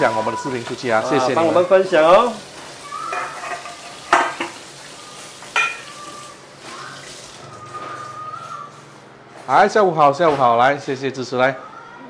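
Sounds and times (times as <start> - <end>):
metal cookware clinking: 3.0 - 4.7, 5.4 - 5.9.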